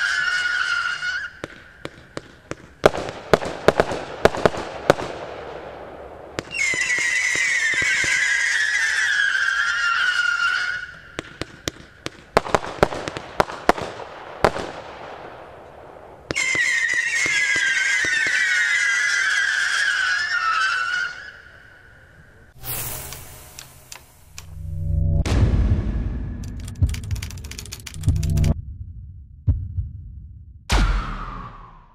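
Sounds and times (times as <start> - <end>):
firework bangs and crackles: 0.0 - 21.5
falling firework whistle: 6.4 - 11.4, 16.3 - 22.0, 22.6 - 25.2, 30.7 - 31.9.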